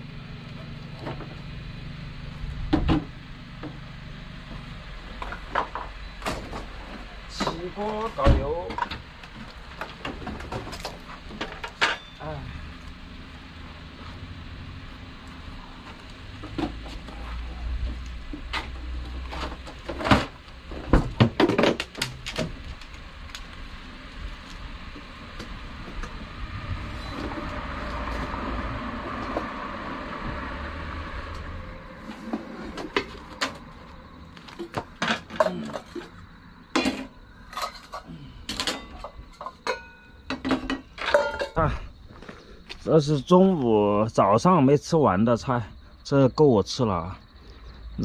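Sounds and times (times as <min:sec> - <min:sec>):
pots and utensils clinking: 0:36.8 - 0:41.6.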